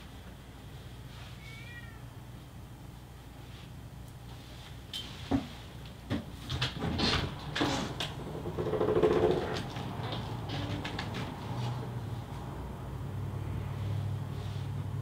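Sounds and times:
cat meowing: 0:01.4 - 0:02.1
small knocks and rustles: 0:04.3 - 0:11.9.

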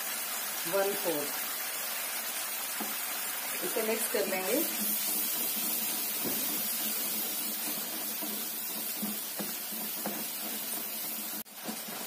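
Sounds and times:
food sizzling in oil: 0:00.0 - 0:12.0
wooden spoon scraping: 0:04.6 - 0:12.0.

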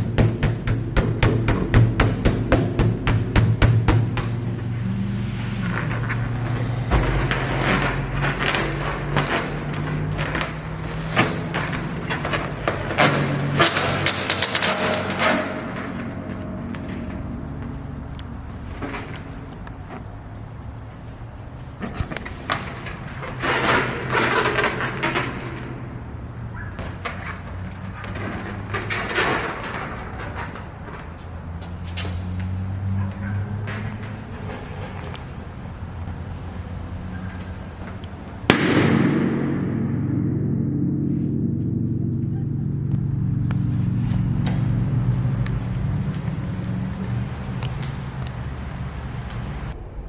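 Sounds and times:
low steady hum: 0:38.0 - 0:50.0.

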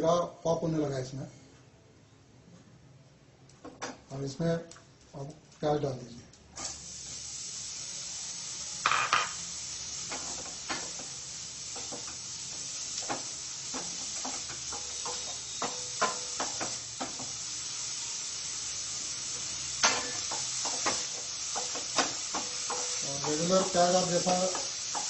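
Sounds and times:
onions sizzling in a pan: 0:06.5 - 0:25.0.

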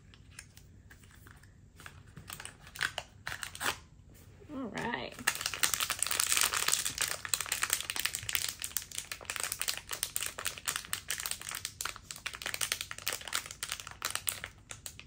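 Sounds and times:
wrapper crinkling: 0:05.2 - 0:15.0.

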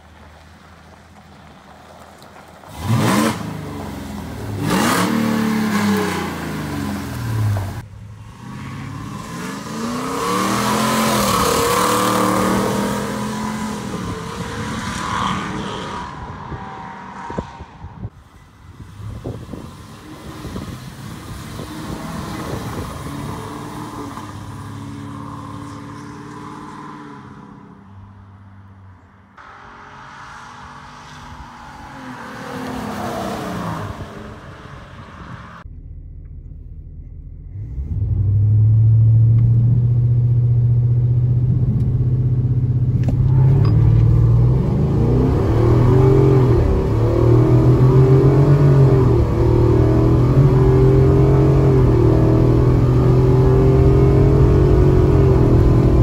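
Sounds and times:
truck engine accelerating hard: 0:02.6 - 0:16.5, 0:18.7 - 0:27.7, 0:37.1 - 0:56.0.

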